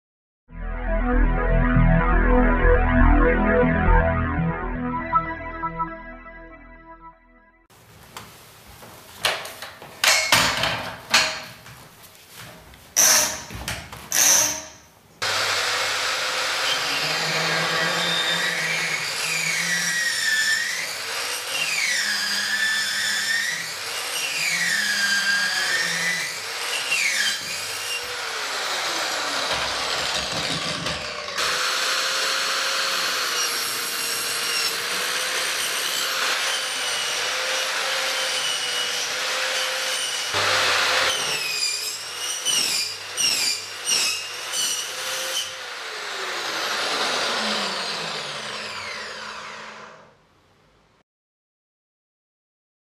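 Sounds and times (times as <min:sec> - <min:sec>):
electric saw cutting metal pipe: 0:14.2 - 0:50.2.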